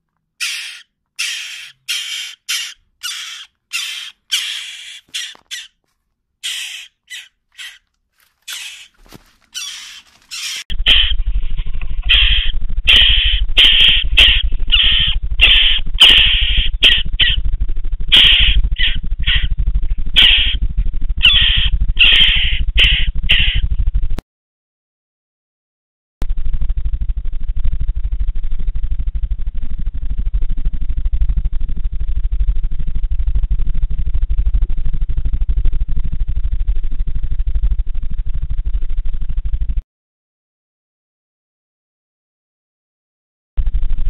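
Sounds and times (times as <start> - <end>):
low electrical hum: 0.0 - 24.2, 26.2 - 39.8
jackdaw nestlings calling: 0.4 - 5.8, 6.4 - 7.8, 8.4 - 11.1, 12.1 - 17.4, 18.1 - 19.5, 20.2 - 20.6, 21.2 - 23.6.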